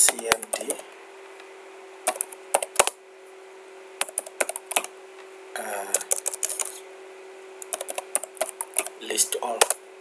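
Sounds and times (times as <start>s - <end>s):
keyboard keys clicking: 0.0s - 0.8s, 2.1s - 3.0s, 4.0s - 4.9s, 5.9s - 6.8s, 7.6s - 8.9s, 9.6s - 9.8s
low electrical hum: 0.0s - 10.0s.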